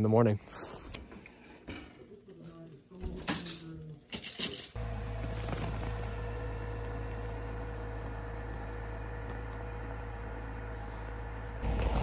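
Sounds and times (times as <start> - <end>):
truck engine idling: 4.8 - 12.0.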